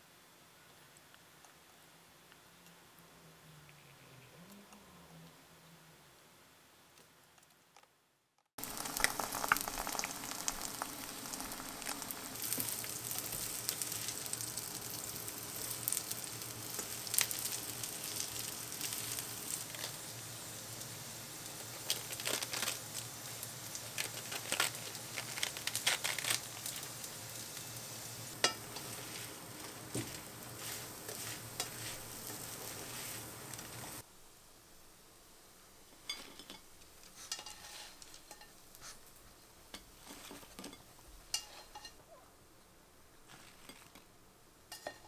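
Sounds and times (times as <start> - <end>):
food sizzling in hot oil: 8.6 - 34.1, 34.7 - 42.0, 44.6 - 45.0
spatula scraping and tapping pan: 28.4 - 33.8, 36.0 - 42.0, 44.7 - 45.0.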